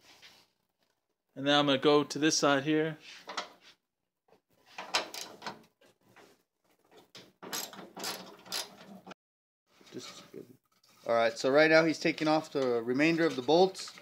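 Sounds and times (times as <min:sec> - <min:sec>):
rustling and clattering handling noise: 0:04.6 - 0:09.1, 0:09.7 - 0:14.0.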